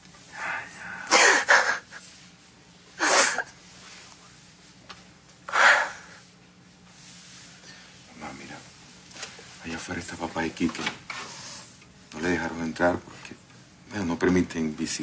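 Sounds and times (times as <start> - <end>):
woman sobbing: 1.1 - 2.0.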